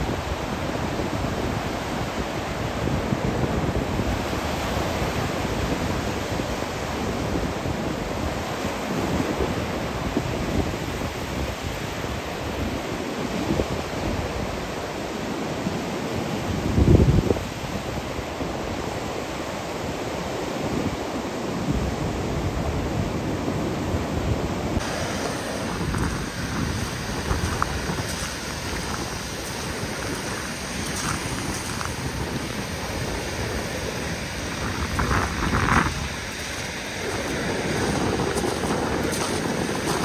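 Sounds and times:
wind buffeting microphone: 0:16.5 - 0:18.8, 0:21.7 - 0:40.0
surf breaking on beach: 0:24.7 - 0:40.0.

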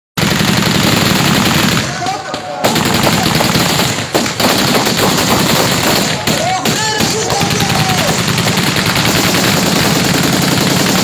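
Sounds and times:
rapid automatic gunfire: 0:00.2 - 0:11.0
men shouting: 0:06.0 - 0:08.2.

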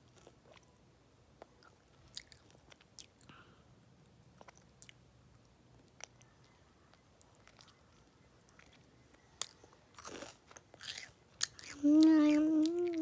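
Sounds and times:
child chewing candy: 0:01.4 - 0:13.0
child humming: 0:11.8 - 0:13.0.

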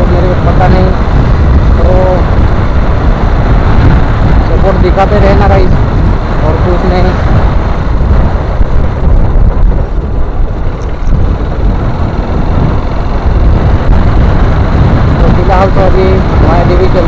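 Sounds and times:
motorcycle engine: 0:00.0 - 0:17.0
road noise: 0:00.0 - 0:17.0
wind rumbling on microphone: 0:00.0 - 0:17.0.

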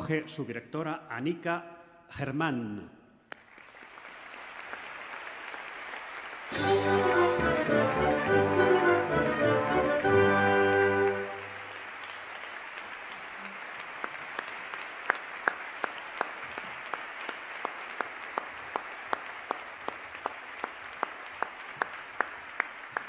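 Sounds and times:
close hands clapping sharply: 0:03.3 - 0:07.6, 0:10.9 - 0:23.0
audience applauding: 0:03.3 - 0:23.0.

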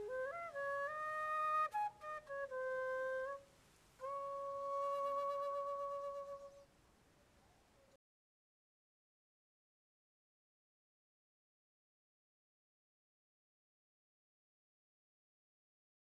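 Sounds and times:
solo flute melody: 0:00.0 - 0:06.7.

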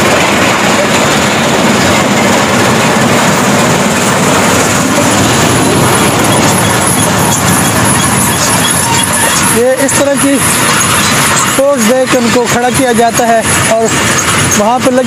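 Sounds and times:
stone crushing machinery: 0:06.3 - 0:15.0.

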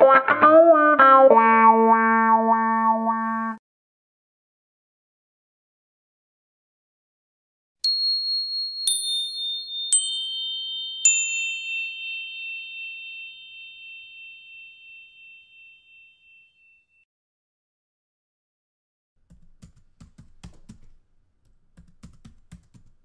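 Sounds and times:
bell-like chime notes: 0:07.9 - 0:17.0.

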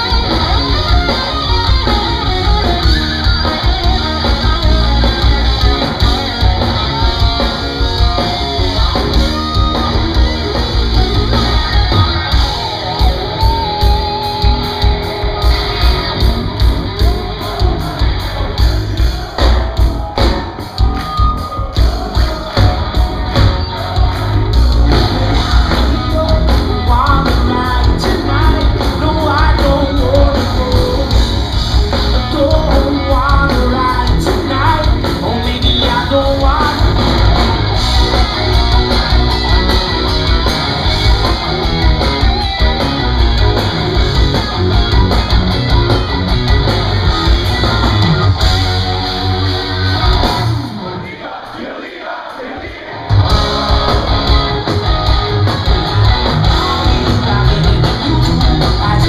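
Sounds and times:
live rock band playing: 0:00.0 - 0:59.0
person singing: 0:24.9 - 0:37.3, 0:55.9 - 0:59.0.

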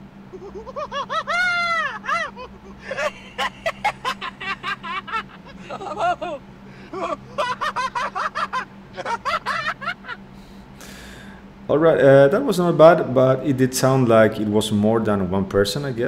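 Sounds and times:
man laughing in short bursts: 0:00.3 - 0:10.2.

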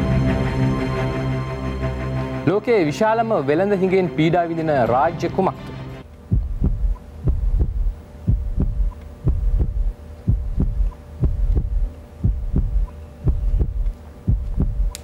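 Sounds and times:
steady hum: 0:00.0 - 0:15.0
countdown timer thumps: 0:06.3 - 0:14.9.

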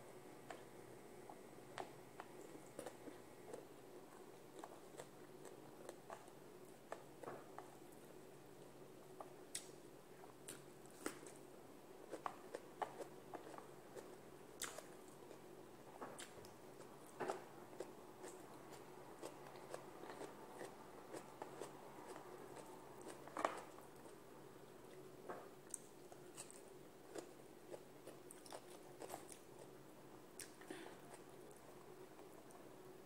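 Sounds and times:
faint steady hum: 0:00.0 - 0:33.0
chewing: 0:00.4 - 0:11.4, 0:12.1 - 0:15.5, 0:16.1 - 0:24.2, 0:25.6 - 0:29.8.

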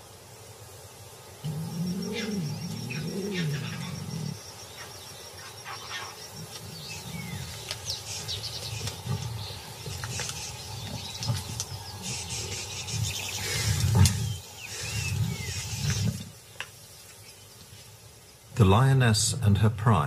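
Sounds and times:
low animal call: 0:01.4 - 0:16.3.

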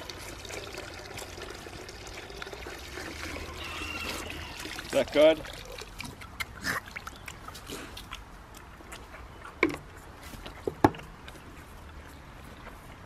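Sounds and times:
piglets slurping water: 0:00.0 - 0:10.6.

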